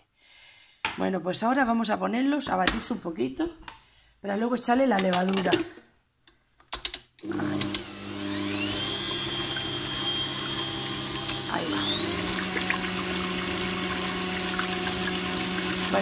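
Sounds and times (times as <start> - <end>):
stand mixer motor whine: 7.2 - 16.0.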